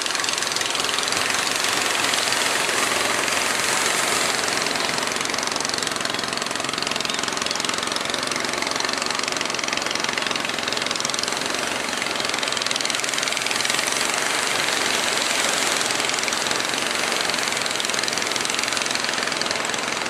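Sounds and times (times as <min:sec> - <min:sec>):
surf and choppy waves: 0:00.0 - 0:06.8
boat engines knocking: 0:00.0 - 0:20.0.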